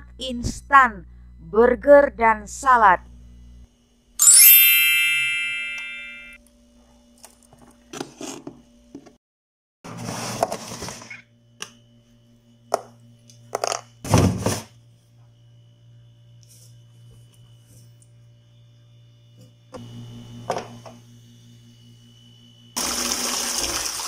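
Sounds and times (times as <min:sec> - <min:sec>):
refrigerator hum: 0:00.0 - 0:04.2, 0:06.4 - 0:09.2, 0:09.9 - 0:24.0
crisper drawer sliding out: 0:09.9 - 0:11.1
plastic containers knocking and rustling: 0:13.5 - 0:14.7.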